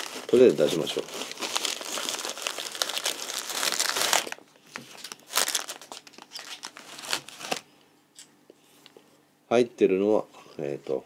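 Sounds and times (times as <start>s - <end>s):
bag and packaging crinkling: 0.0s - 7.7s.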